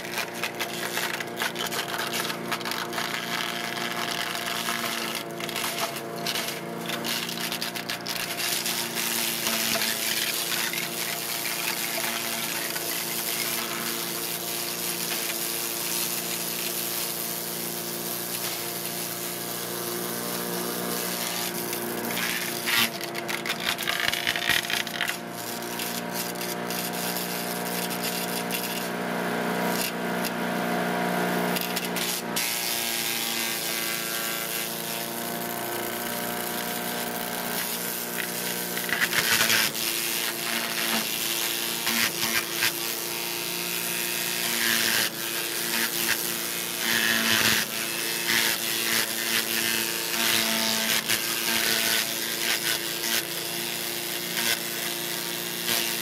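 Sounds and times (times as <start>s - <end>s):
crackling and grinding shredding: 0.0s - 30.6s, 31.2s - 55.0s
chipper engine running: 0.0s - 33.5s, 34.5s - 41.4s.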